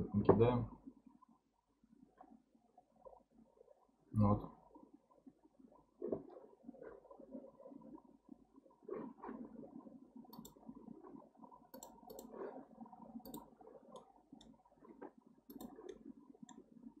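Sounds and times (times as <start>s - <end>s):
faint low room noise: 0.0s - 17.0s
computer mouse clicks: 10.3s - 10.7s, 11.7s - 12.5s, 13.2s - 14.6s, 15.5s - 16.6s.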